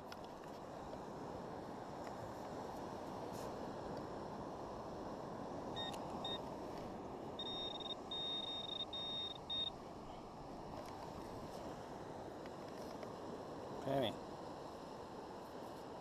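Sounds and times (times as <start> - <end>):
wind: 0.0 - 16.0
pinpointer probe beeping: 5.8 - 6.4, 7.4 - 9.7.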